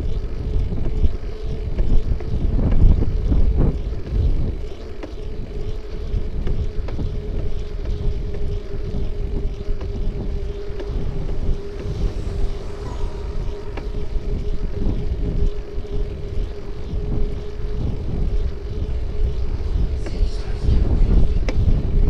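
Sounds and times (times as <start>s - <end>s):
small rattles and clicks: 0.0s - 12.3s
low road rumble: 0.0s - 22.0s
steady hum: 0.0s - 22.0s
wind buffeting microphone: 0.0s - 22.0s.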